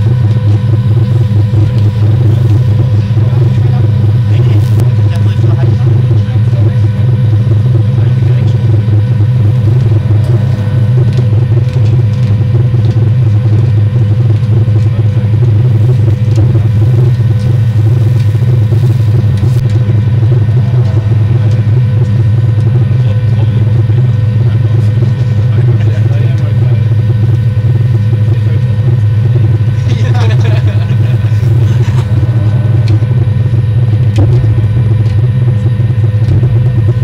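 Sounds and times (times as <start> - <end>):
motorway traffic rumble: 0.0 - 37.0.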